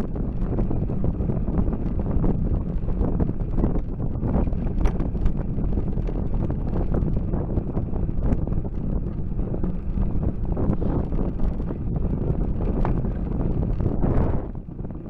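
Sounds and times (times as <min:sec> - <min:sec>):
road noise: 0:00.0 - 0:15.0
wind buffeting microphone: 0:00.0 - 0:15.0
small clicks: 0:00.3 - 0:11.7.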